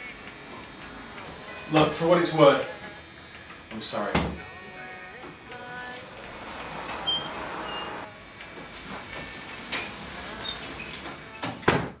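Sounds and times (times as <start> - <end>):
high ringing tones: 4.7 - 8.1.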